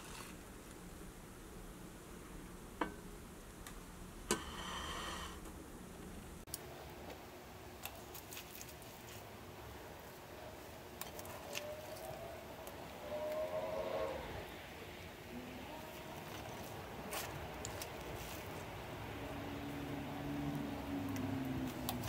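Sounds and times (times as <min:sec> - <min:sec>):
faint handling sounds: 0:06.5 - 0:13.4, 0:15.8 - 0:19.2.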